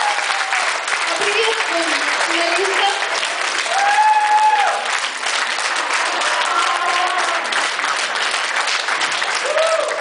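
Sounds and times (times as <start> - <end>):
crowd applauding: 0.0 - 10.0
person cheering: 3.7 - 4.9, 6.0 - 7.6, 9.4 - 10.0.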